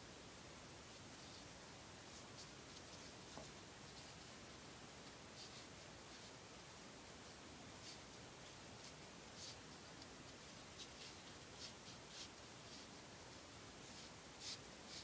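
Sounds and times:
steady hiss: 0.0 - 15.0
cord rustling: 7.8 - 15.0.

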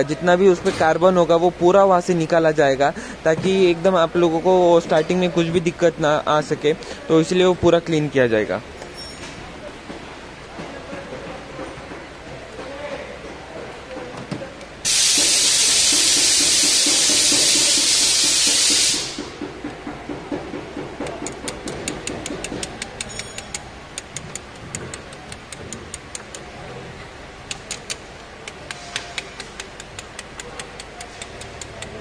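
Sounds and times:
loud steady hiss: 14.8 - 19.5
spanner clicking on metal: 14.9 - 19.3, 21.0 - 26.5, 27.3 - 32.0.

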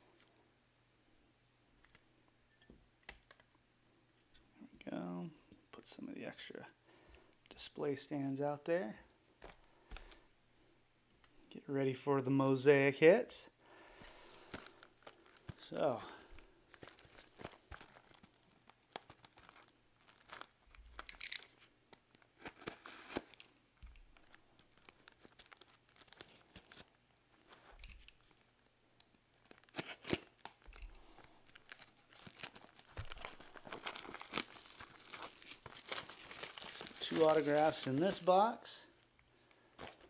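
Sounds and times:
plastic wrap crinkling and tearing: 14.3 - 39.0.

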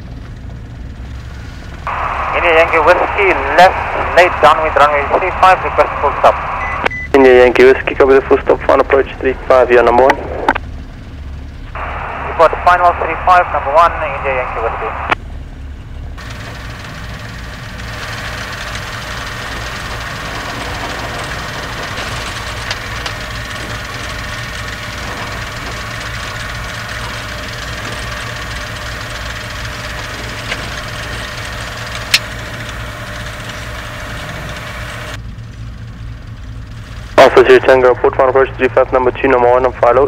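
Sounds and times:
light aircraft engine running: 0.0 - 40.0
sharp clicks: 31.8 - 32.8.

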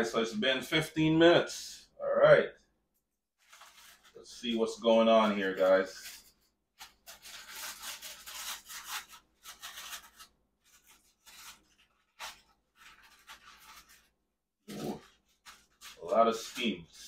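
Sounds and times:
foil packet crinkling: 3.4 - 4.2, 5.5 - 16.7.

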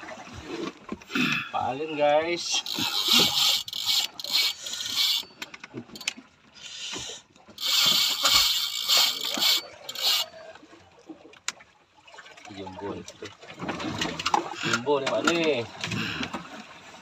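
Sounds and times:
fishing reel ratcheting: 2.4 - 6.2, 7.6 - 10.3.

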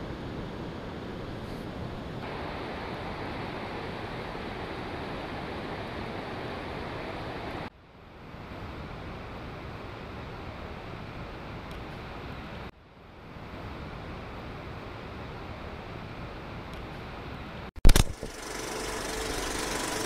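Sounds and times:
waterfall and stream rushing: 2.2 - 7.7.

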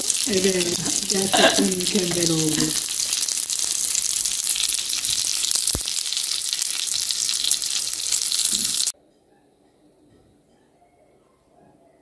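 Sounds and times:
oil sizzling in a frying pan: 0.0 - 8.9.

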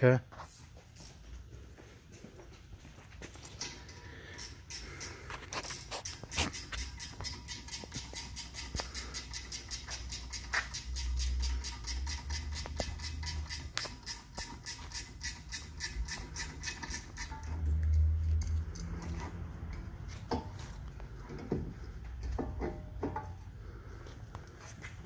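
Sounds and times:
metallic clinks and knocks: 0.3 - 1.8, 2.7 - 23.5
ratchet wrench clicking rapidly: 6.5 - 19.0.

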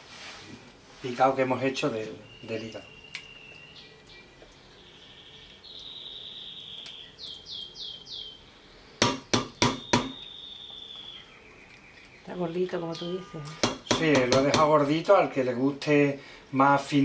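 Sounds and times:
small bird singing: 1.8 - 14.6
utensil tapping a metal pot: 9.0 - 10.2, 13.6 - 14.9.

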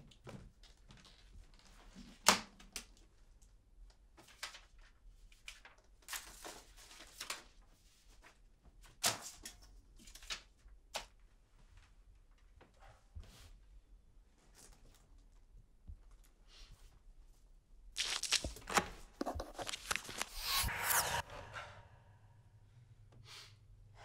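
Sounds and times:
papers rustling: 18.0 - 20.7.

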